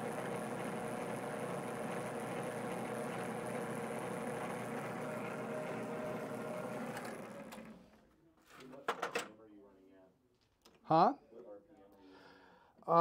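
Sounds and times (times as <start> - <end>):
metal lathe running: 0.0 - 7.7
lathe spinning down: 0.0 - 7.8.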